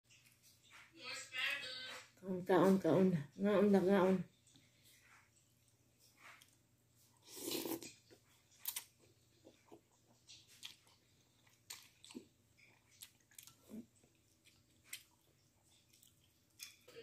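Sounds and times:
quiet chewing: 0.1 - 0.9, 4.2 - 17.0
person slurping noodles: 7.2 - 8.0.

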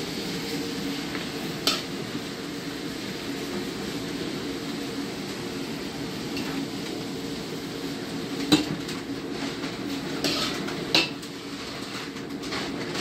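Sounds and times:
metal spatula scraping wok: 0.1 - 2.4, 8.4 - 13.0.

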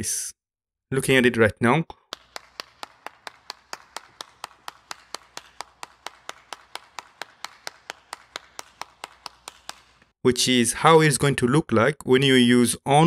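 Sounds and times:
person clapping hands: 2.1 - 10.1.

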